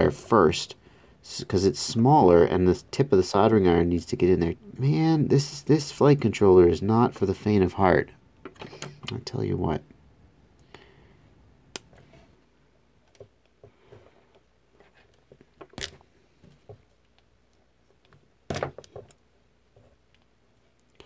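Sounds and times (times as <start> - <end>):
clicks and taps of handling wires: 13.0 - 14.5.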